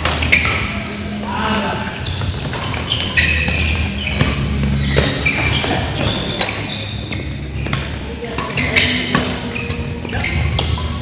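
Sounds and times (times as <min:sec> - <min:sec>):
racket hitting shuttlecock: 0:00.0 - 0:01.6, 0:02.2 - 0:06.6, 0:07.6 - 0:09.7
shoes squeaking on court: 0:00.0 - 0:11.0.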